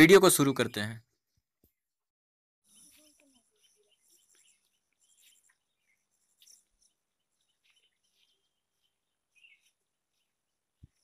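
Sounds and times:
small birds chirping: 2.6 - 11.0.

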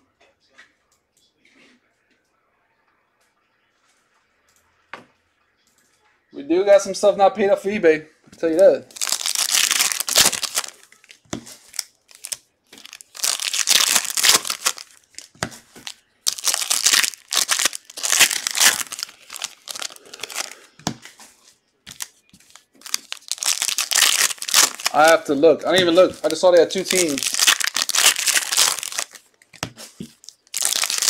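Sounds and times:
plastic wrappers tearing and crinkling: 8.8 - 20.8, 21.9 - 31.0.

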